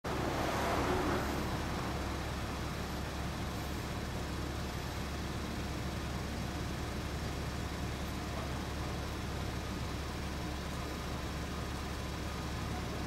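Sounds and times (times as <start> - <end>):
motorcycle engine idling: 1.7 - 13.0.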